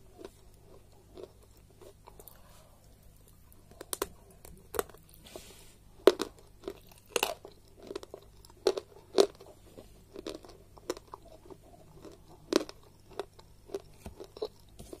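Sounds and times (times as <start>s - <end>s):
chalk crunching while chewed: 0.1s - 2.4s, 6.0s - 15.0s.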